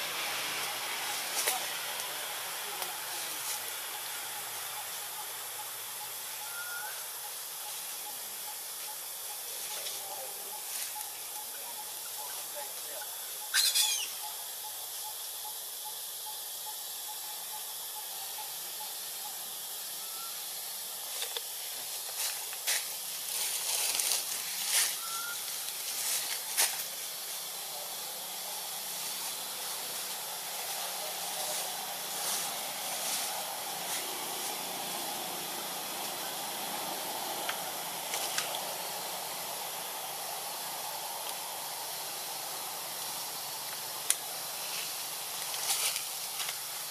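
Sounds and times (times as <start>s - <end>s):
outdoor background hiss: 0.0s - 46.9s
baby monkey squeal: 13.5s - 14.3s
clicks and rustles in branches: 44.0s - 46.9s.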